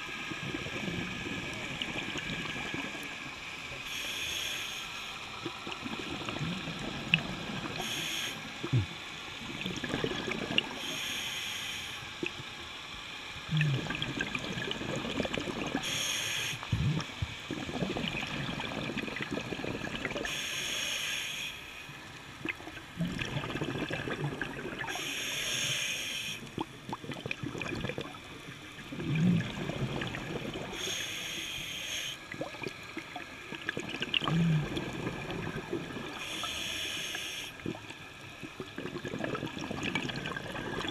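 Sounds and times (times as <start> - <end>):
regulator inhale hiss: 3.7 - 5.3, 7.7 - 8.8, 10.7 - 12.2, 15.8 - 16.8, 20.2 - 22.0, 24.8 - 26.5, 30.7 - 32.3, 36.2 - 37.6
bubbling exhaust: 13.4 - 20.4, 22.4 - 25.2, 28.8 - 31.0, 33.5 - 36.6.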